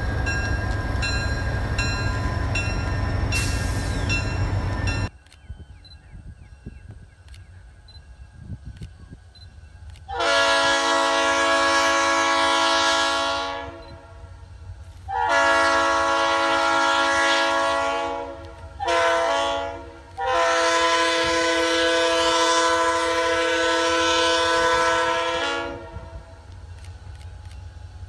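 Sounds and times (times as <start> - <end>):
locomotive air horn blasts: 10.1 - 14.3, 15.1 - 26.4.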